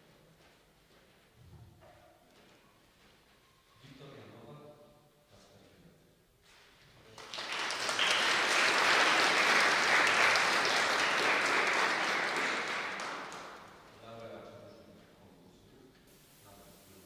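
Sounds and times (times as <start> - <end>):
audience applauding: 7.1 - 13.9.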